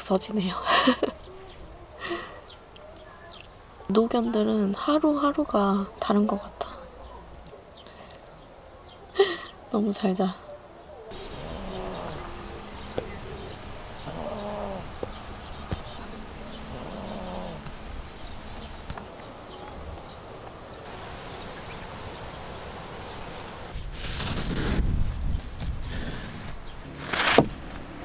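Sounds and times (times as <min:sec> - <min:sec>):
dog snoring: 0:11.1 - 0:17.8
steady background hiss: 0:11.1 - 0:24.2.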